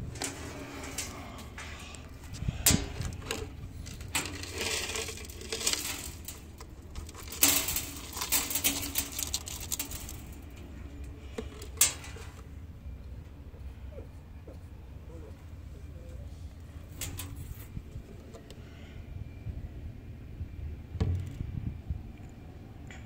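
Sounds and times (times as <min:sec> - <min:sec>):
rustling: 0:00.0 - 0:12.5.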